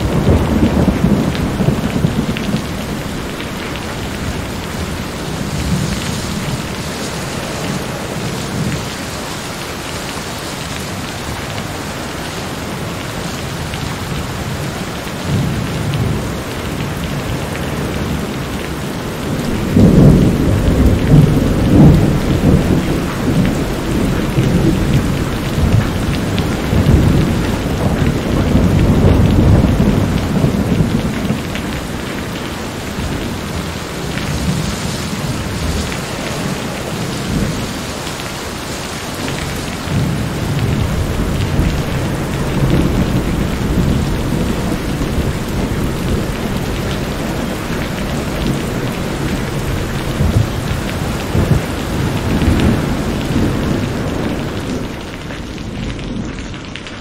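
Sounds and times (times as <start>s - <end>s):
thunder rolling: 0.0s - 9.0s, 19.2s - 37.8s, 39.2s - 56.4s
heavy rain: 0.0s - 57.0s.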